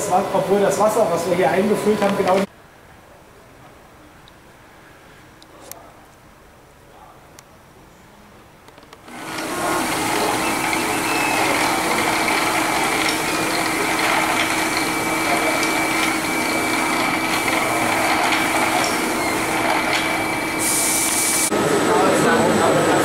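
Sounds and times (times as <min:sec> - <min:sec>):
printer motors and fans whirring: 0:00.0 - 0:02.5, 0:08.6 - 0:23.0
high whine: 0:09.1 - 0:23.0.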